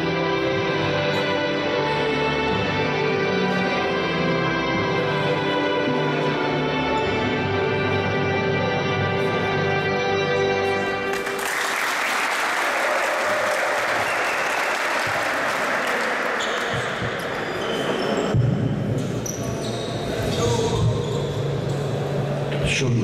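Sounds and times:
music with sustained tones: 0.0s - 15.2s
low-pitched hall noise: 0.0s - 23.0s
people applauding: 11.0s - 17.2s.

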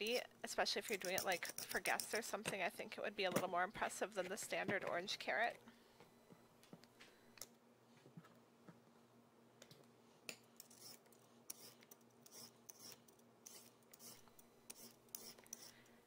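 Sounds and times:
peeler scraping carrot: 0.9s - 2.2s, 10.6s - 15.8s.

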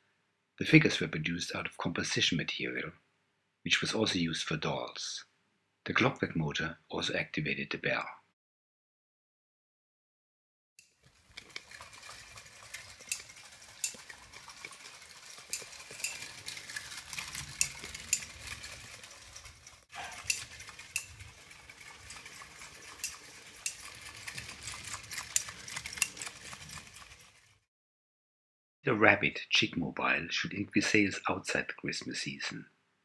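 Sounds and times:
clockwork toy motor rattling: 10.8s - 27.7s.

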